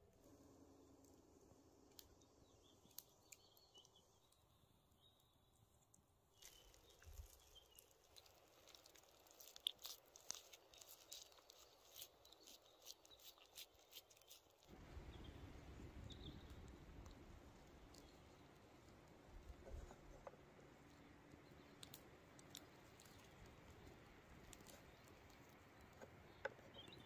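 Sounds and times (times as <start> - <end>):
hands rolling raw meat: 6.5 - 14.7
steady faint hiss: 14.6 - 27.0.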